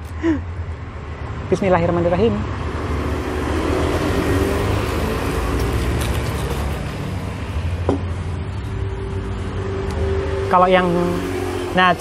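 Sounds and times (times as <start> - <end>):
low rumble of traffic: 0.0 - 12.0.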